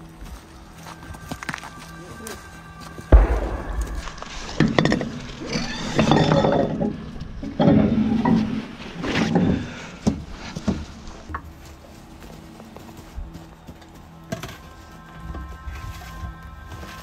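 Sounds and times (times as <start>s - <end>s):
heavy thump: 3.1s - 8.7s
metal clanks and clinks: 4.6s - 9.6s.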